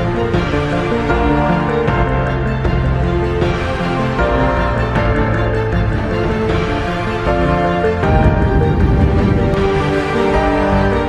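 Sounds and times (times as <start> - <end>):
held chords: 0.0 - 11.0
steady bass line: 4.3 - 11.0.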